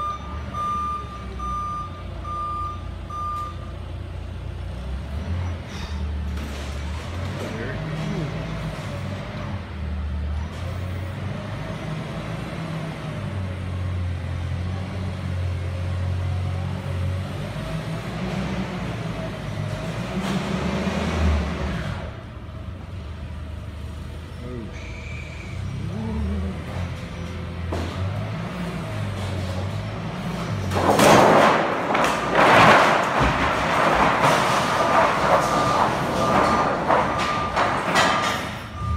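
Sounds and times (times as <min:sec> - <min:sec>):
forklift short beeps: 0:00.0 - 0:03.8, 0:24.8 - 0:25.8, 0:38.5 - 0:38.9
forklift engine humming: 0:00.0 - 0:38.9
lumber boards clattering down: 0:30.5 - 0:38.8.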